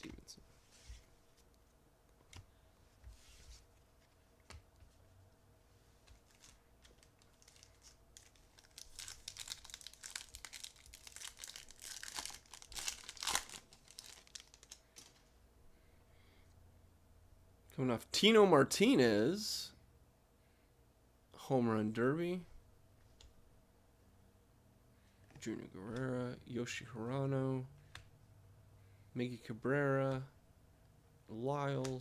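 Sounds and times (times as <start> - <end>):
foil wrapper tearing and crinkling: 6.2 - 14.8.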